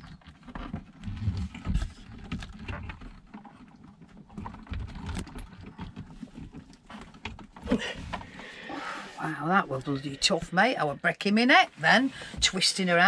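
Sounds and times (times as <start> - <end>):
small clicks taps and scrapes: 0.0 - 8.5.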